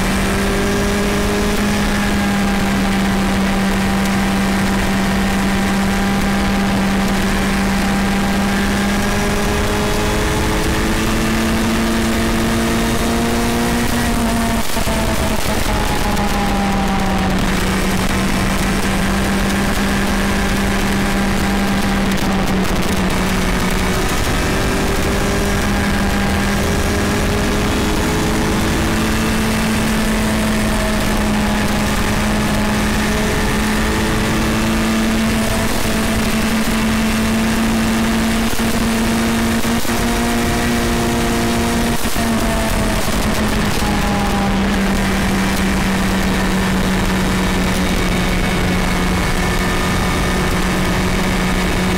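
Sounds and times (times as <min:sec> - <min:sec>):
road and wind noise: 0:00.0 - 0:51.9
vehicle engine cruising: 0:00.0 - 0:51.9.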